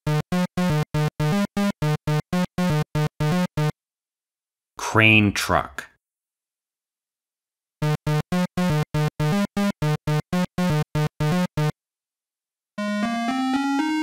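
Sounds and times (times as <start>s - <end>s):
chiptune melody: 0.0s - 3.7s, 7.8s - 11.7s, 12.8s - 14.0s.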